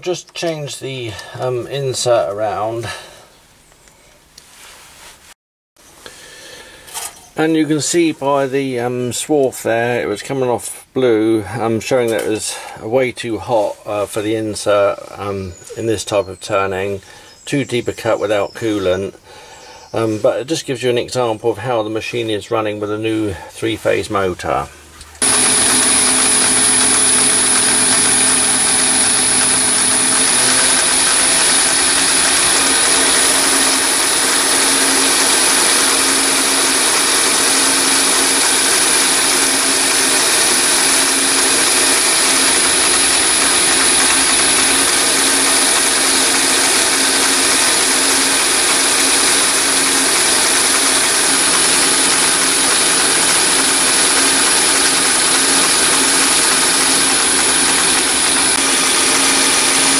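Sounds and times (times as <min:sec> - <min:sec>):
steady high whine: 0:25.1 - 0:59.9
cutting tool turning steel bar: 0:25.2 - 0:59.9
lathe running: 0:25.2 - 0:59.9.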